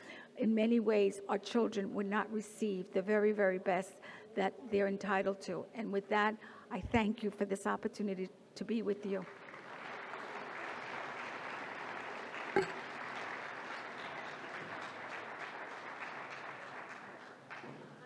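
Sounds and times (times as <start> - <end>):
audience applauding: 9.3 - 18.0.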